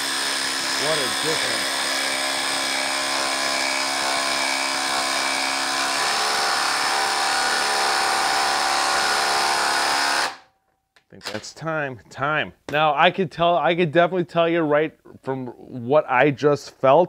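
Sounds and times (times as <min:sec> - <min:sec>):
impact driver hammering: 0:00.0 - 0:10.4.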